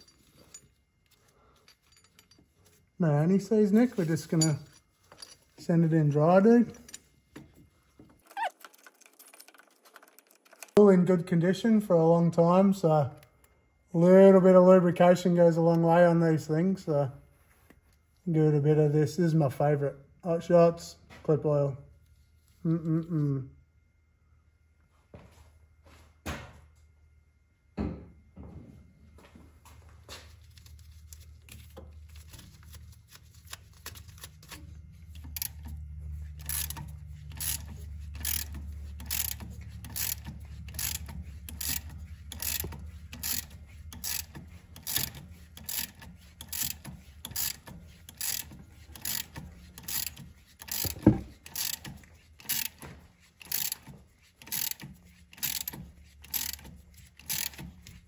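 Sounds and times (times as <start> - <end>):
hand ratchet clicking: 33.5 - 58.0.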